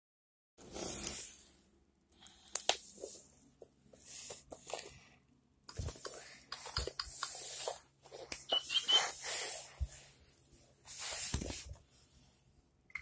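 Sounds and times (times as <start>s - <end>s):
rustling handling noise: 5.7s - 12.5s.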